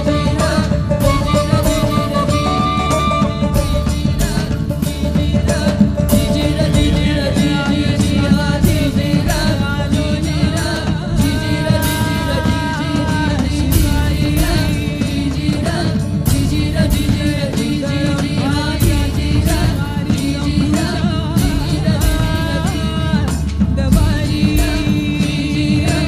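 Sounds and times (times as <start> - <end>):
person singing ornamented notes: 0.0 - 8.2
percussion strokes: 0.0 - 26.0.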